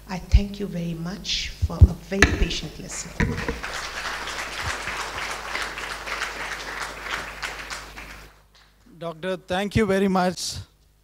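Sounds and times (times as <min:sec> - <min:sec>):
audience applauding: 0:03.5 - 0:08.4.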